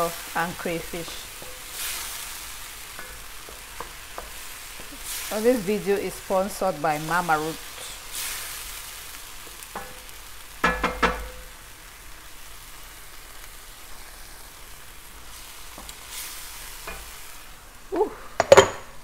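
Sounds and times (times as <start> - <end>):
stew sizzling gently: 0.0 - 19.0
wooden spatula scraping a pan: 0.3 - 6.3.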